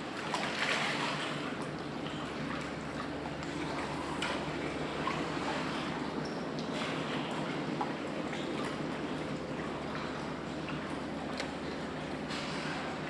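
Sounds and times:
water lapping around a boat: 0.0 - 13.0.

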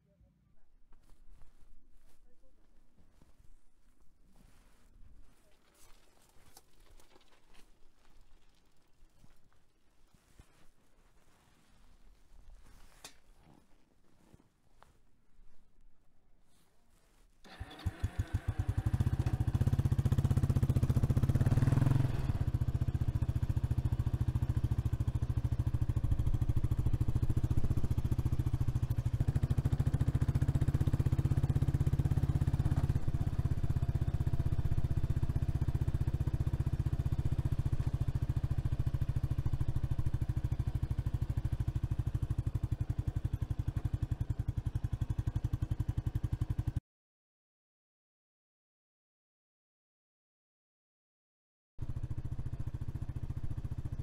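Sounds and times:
motorcycle engine running: 17.5 - 46.8, 51.8 - 54.0.

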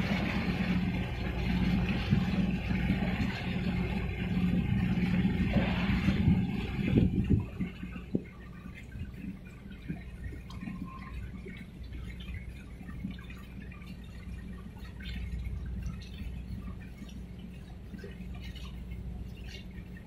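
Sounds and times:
steady low rumble: 0.0 - 20.0
water lapping against shore: 0.0 - 20.0.

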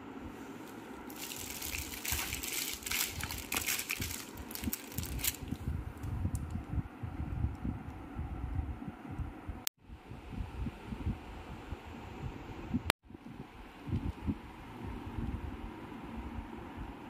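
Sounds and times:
cellophane crinkling: 0.7 - 5.6.

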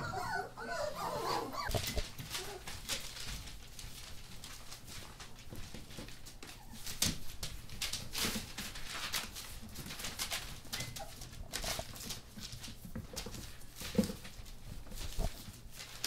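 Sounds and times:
puppy whimpers: 0.0 - 2.7, 6.4 - 7.0
puppy claws scuffling on floor: 0.0 - 16.0.

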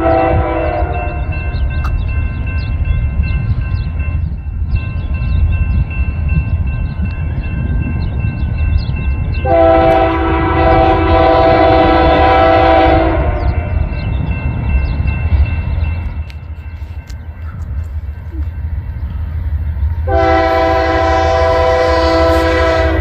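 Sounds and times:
train air horn blast: 0.0 - 1.4, 9.4 - 13.7, 20.0 - 23.0
locomotive rumbling: 0.0 - 23.0.

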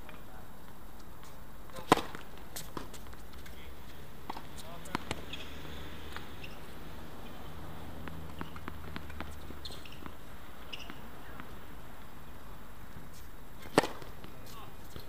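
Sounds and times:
shoe squeaks: 4.6 - 5.6, 6.2 - 7.4, 8.3 - 11.1.

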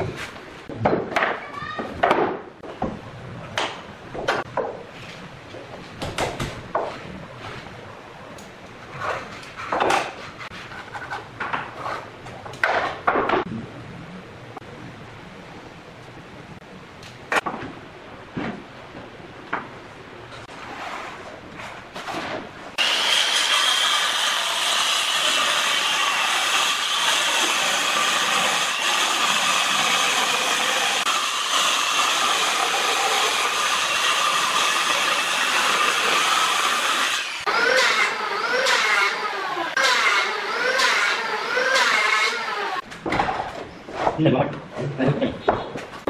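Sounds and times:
circular saw cutting wood: 22.8 - 42.8
electric hand planer passes: 22.8 - 42.8.

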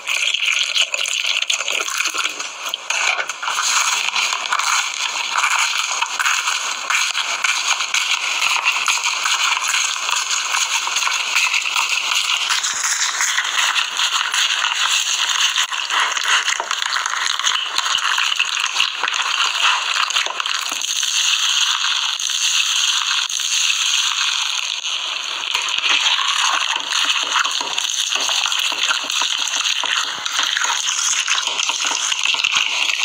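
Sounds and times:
foam bead slime crackling: 25.5 - 33.0.

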